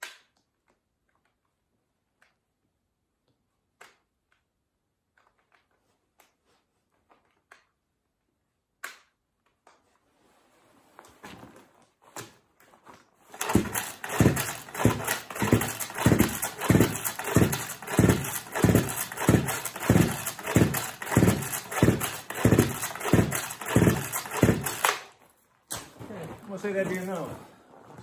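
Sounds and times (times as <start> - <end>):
engine cranking: 13.3 - 25.2
chainsaw recoil starter pulls: 13.3 - 25.3.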